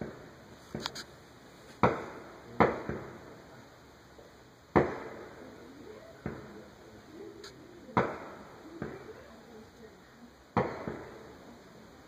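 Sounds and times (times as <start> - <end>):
firework pop and crackle: 1.8 - 3.3, 4.7 - 5.4, 6.2 - 6.6, 7.4 - 9.1, 10.6 - 11.2
firework bangs echoing: 1.8 - 3.4, 4.7 - 5.5, 6.2 - 6.6, 7.9 - 9.2, 10.6 - 11.4.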